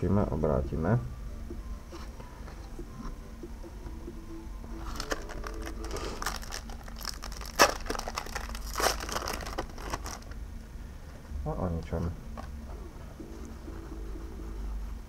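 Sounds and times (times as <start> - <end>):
foil wrapper crinkling: 4.8 - 10.4.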